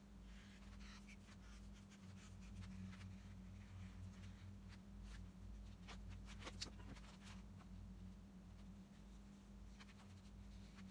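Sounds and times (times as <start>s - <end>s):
low steady hum: 0.0s - 10.9s
marker scratching on foam: 0.3s - 5.2s.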